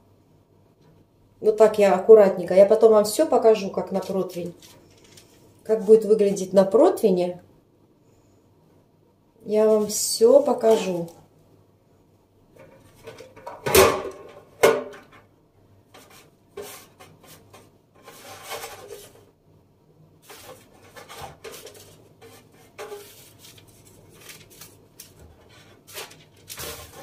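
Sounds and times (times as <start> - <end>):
rustles and scrapes: 3.9 - 6.5, 9.6 - 11.2, 15.9 - 19.4, 20.2 - 27.0.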